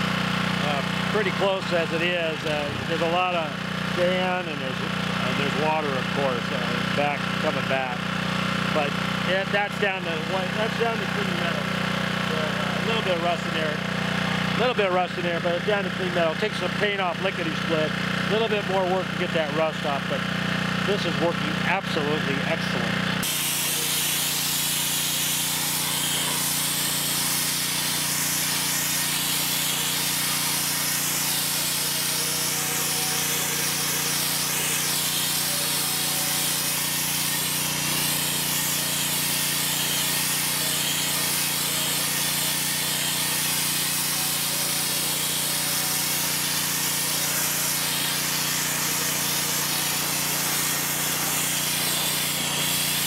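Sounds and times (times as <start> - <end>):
pressure washer spray hiss: 23.2 - 53.0.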